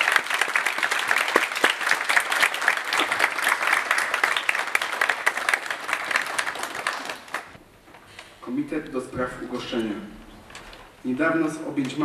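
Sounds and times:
audience applauding: 0:00.0 - 0:07.6.

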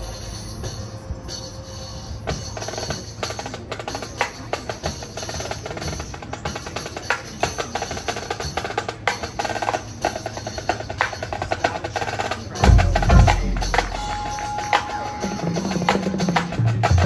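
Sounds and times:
deep bass drum hits: 0:12.6 - 0:14.1
held high note: 0:12.6 - 0:16.6.

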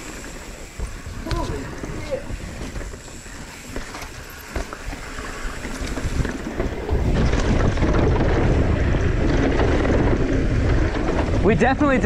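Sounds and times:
bike tyres rumbling on trail: 0:00.0 - 0:12.0
wind buffeting microphone: 0:00.0 - 0:12.0
bike knocks and rattles: 0:00.6 - 0:12.0.

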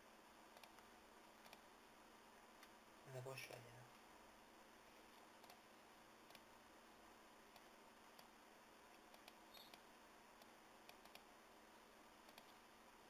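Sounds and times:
low background hiss: 0:00.0 - 0:13.0
computer mouse clicking: 0:00.5 - 0:01.6, 0:05.1 - 0:05.6, 0:06.2 - 0:06.5, 0:07.5 - 0:08.3, 0:08.9 - 0:11.3, 0:12.2 - 0:12.6.

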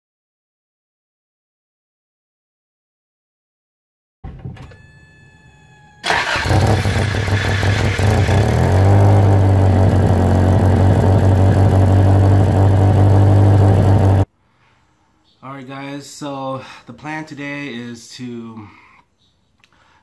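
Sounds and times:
car engine idling: 0:05.9 - 0:14.2
exhaust leak puffing: 0:06.0 - 0:11.7.

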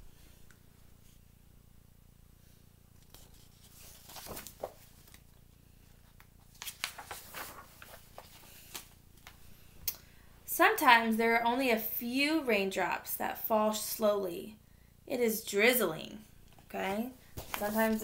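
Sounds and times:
book pages turning: 0:03.0 - 0:09.4, 0:17.4 - 0:18.0.

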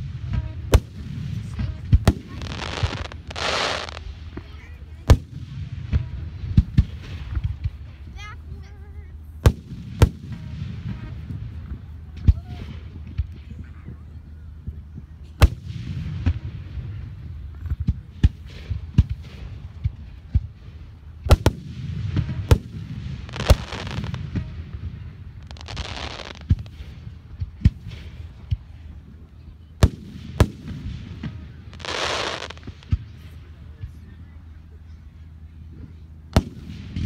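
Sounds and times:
hissing crackle: 0:00.0 - 0:06.2, 0:21.3 - 0:27.2, 0:29.8 - 0:33.0
firework shells bursting: 0:21.3 - 0:24.6.

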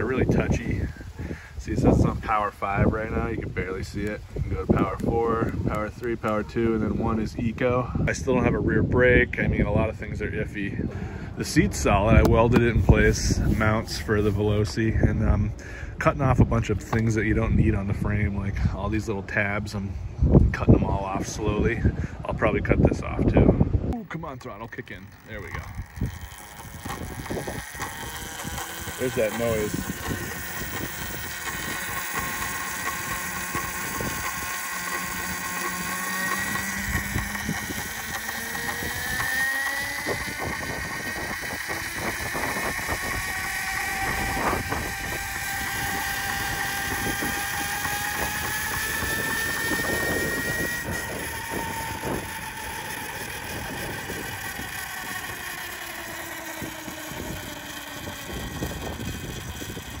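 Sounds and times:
electric bike motor whine: 0:00.0 - 0:19.1, 0:23.0 - 1:00.0
road and wind noise: 0:00.0 - 1:00.0
chain rubbing: 0:24.3 - 1:00.0.

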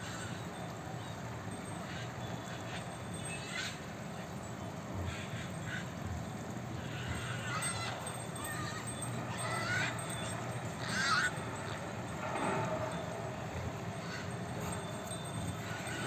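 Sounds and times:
outdoor background noise: 0:00.0 - 0:16.0
gliding animal calls: 0:06.8 - 0:16.0.

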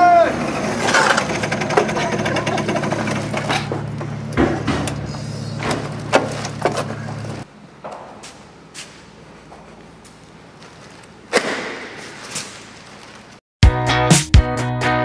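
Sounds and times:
scooter engine idling: 0:00.0 - 0:04.5
knocks and rustles: 0:03.2 - 0:13.4.

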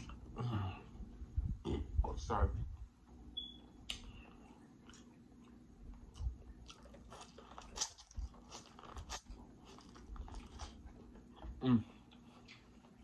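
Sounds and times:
chewing: 0:03.9 - 0:13.0
crunchy bites of corn: 0:06.1 - 0:10.8.

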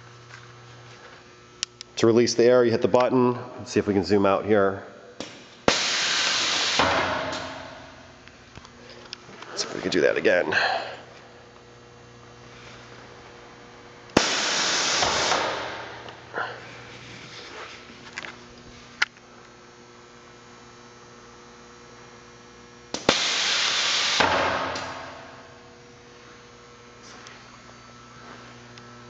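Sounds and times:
steady low hum: 0:00.0 - 0:29.0
air hissing: 0:05.7 - 0:07.0, 0:14.2 - 0:17.6, 0:23.0 - 0:24.8.

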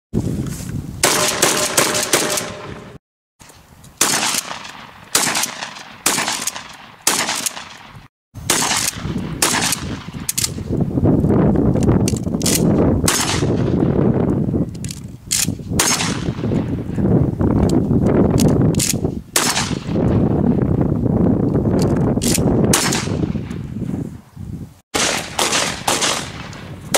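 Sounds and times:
shotgun blasts ringing out: 0:01.0 - 0:03.0, 0:04.0 - 0:10.3, 0:13.0 - 0:14.0, 0:15.8 - 0:16.7, 0:19.4 - 0:20.0, 0:22.7 - 0:23.6, 0:25.0 - 0:26.8.

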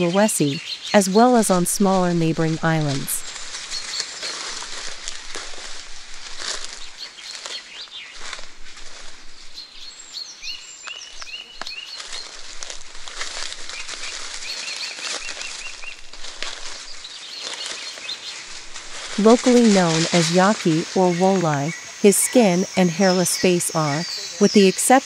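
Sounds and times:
footsteps crunching dry leaves: 0:01.4 - 0:22.0
bird chirping: 0:09.4 - 0:12.4, 0:19.2 - 0:25.0.

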